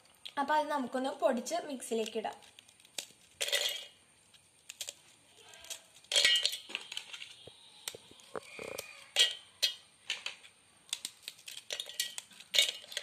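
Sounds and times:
biscuits cracking: 0:01.8 - 0:13.0
pieces clicking into steel jar: 0:02.8 - 0:04.0, 0:05.6 - 0:07.4, 0:08.8 - 0:13.0.

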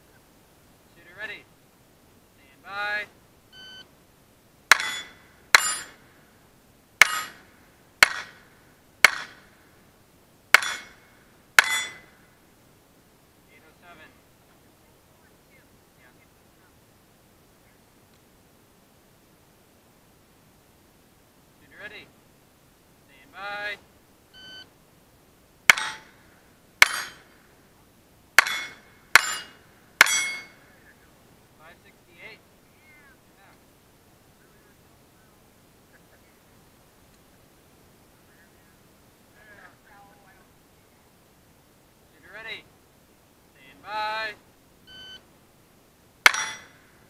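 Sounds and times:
pistol shots: 0:04.7 - 0:05.9, 0:08.0 - 0:09.4, 0:26.8 - 0:27.2, 0:46.2 - 0:46.7
pistol shots cracking: 0:04.7 - 0:06.0, 0:07.0 - 0:09.5, 0:10.5 - 0:12.1, 0:25.7 - 0:26.2, 0:26.8 - 0:27.4, 0:28.4 - 0:30.5, 0:46.2 - 0:46.8
steel plate target ringing: 0:04.7 - 0:06.0, 0:07.0 - 0:09.4, 0:10.5 - 0:12.2, 0:25.7 - 0:26.2, 0:26.8 - 0:27.4, 0:28.4 - 0:30.6, 0:46.2 - 0:46.8.

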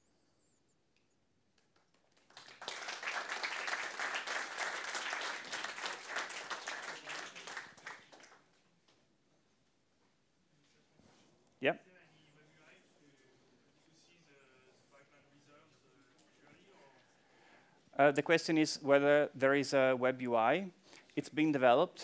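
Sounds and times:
audience applauding: 0:01.6 - 0:08.5.

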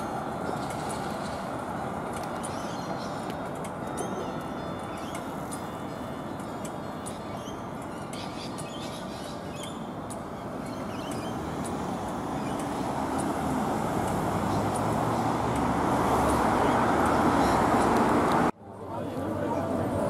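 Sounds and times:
cars passing: 0:00.0 - 0:20.0.

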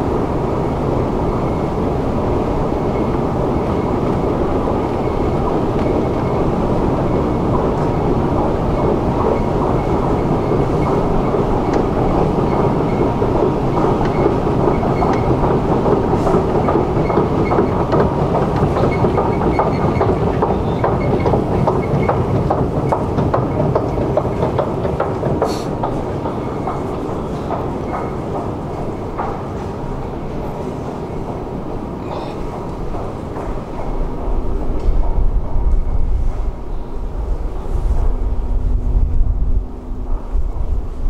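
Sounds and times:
escalator mechanical rumble: 0:00.0 - 0:41.0.

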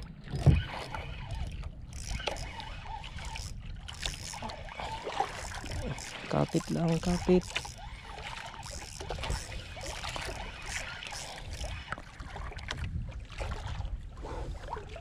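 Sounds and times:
water lapping against a canoe hull: 0:00.0 - 0:15.0
wind rumble on microphone: 0:09.0 - 0:15.0.

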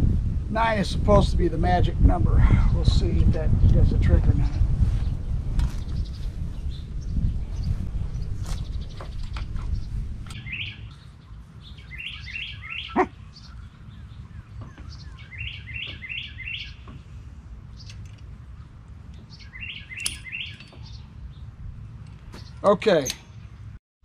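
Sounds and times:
steady low rumble: 0:00.0 - 0:12.0, 0:20.9 - 0:22.3
songbird chirping: 0:04.4 - 0:23.8.

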